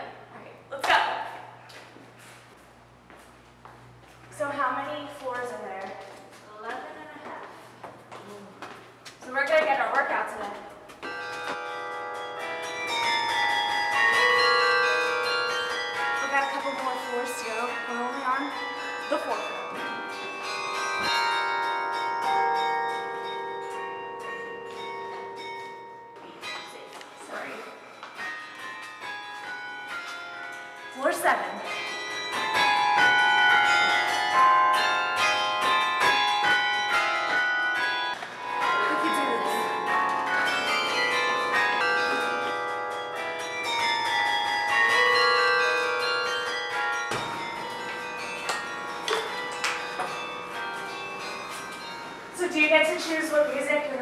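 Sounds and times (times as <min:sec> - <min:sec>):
carillon bells playing slow tune: 0:11.0 - 0:53.9.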